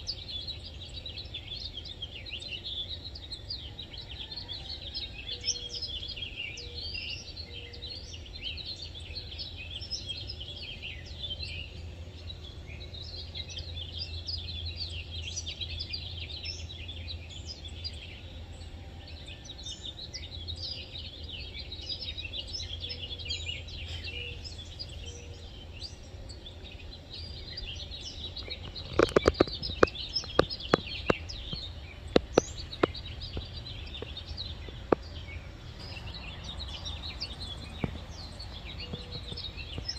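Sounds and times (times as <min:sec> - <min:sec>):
birds chirping: 0:00.0 - 0:39.9
low steady rumble: 0:10.4 - 0:39.9.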